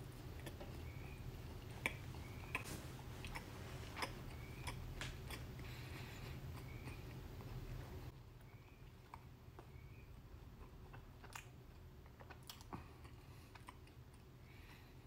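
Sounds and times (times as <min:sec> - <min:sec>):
low steady hum: 0:00.0 - 0:15.0
chewing with wet smacks: 0:00.1 - 0:15.0
mouth clicks: 0:03.2 - 0:05.6.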